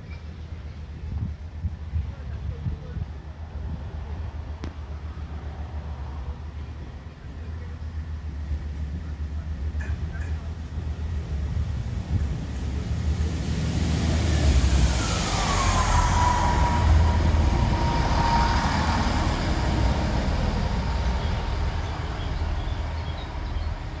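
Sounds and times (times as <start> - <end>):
diesel engine rumble: 0.2 - 24.0
high whine: 12.1 - 24.0.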